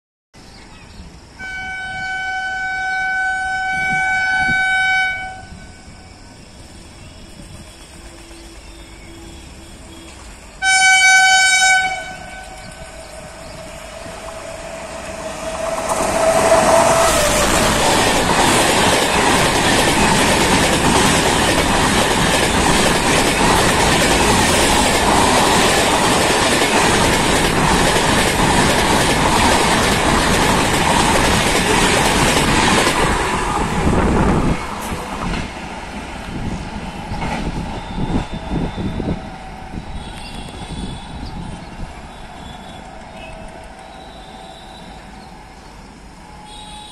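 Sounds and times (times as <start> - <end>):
train rumble: 1.0 - 46.9
locomotive horn: 1.4 - 6.0, 7.9 - 13.2, 37.8 - 41.3, 42.1 - 45.2, 46.3 - 46.9
train wheels rushing past: 3.4 - 46.9.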